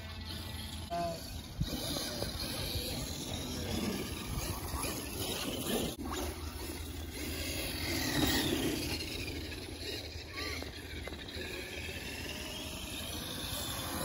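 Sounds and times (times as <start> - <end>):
electric motors whining: 0.0 - 14.0
tyre and drivetrain noise: 0.0 - 14.0.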